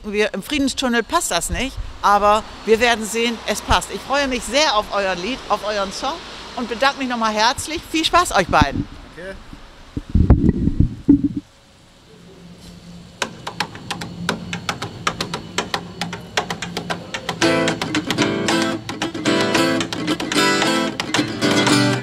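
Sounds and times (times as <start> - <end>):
acoustic guitar playing: 13.3 - 22.0.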